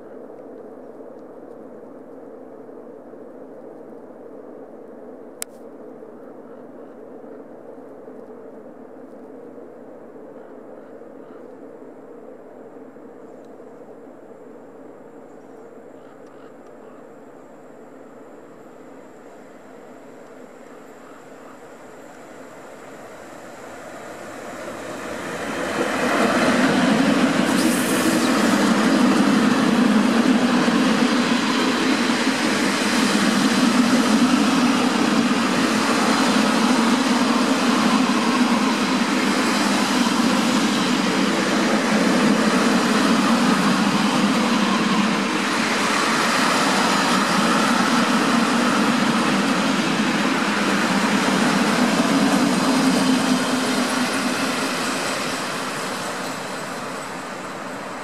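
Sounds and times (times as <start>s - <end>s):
electric locomotive passing: 18.3s - 58.0s
train wheels on rail: 19.5s - 58.0s.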